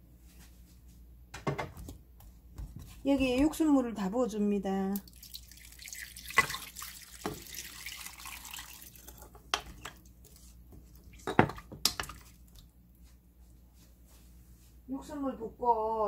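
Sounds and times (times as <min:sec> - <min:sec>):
wooden spoon stirring soup: 0:01.8 - 0:03.8, 0:08.8 - 0:12.6
broth pouring into a pot: 0:05.0 - 0:09.4.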